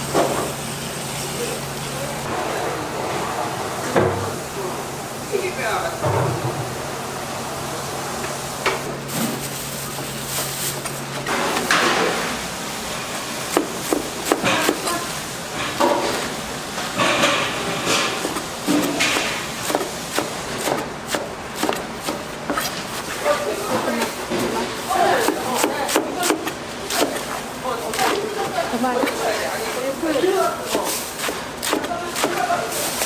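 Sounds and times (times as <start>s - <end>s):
knife chopping on cutting board: 18.2s - 22.8s, 30.7s - 32.5s.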